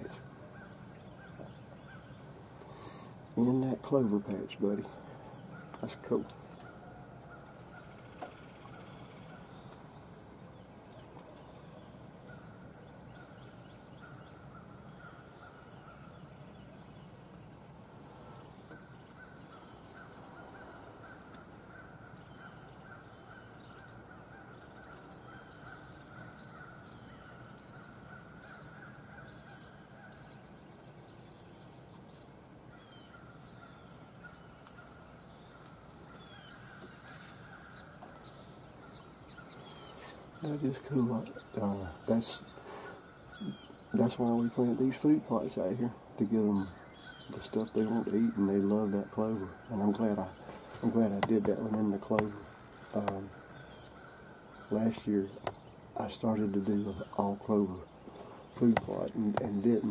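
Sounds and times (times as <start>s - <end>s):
steady hiss: 2.4s - 6.5s.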